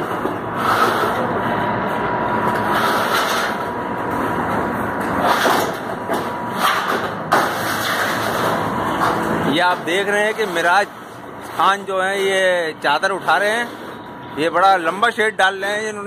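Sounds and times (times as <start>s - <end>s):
road traffic noise: 0.0s - 16.0s
metallic clanks and scrapes: 5.1s - 9.3s.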